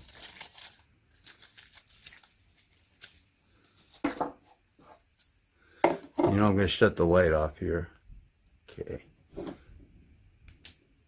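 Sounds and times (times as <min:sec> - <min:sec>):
paper rustling and tearing: 0:00.0 - 0:04.1.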